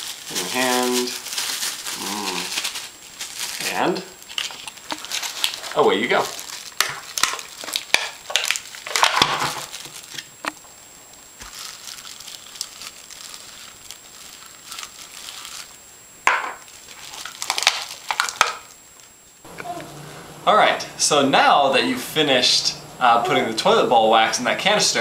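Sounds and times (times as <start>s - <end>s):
plastic bag crinkling: 0.0s - 15.8s, 16.6s - 19.1s.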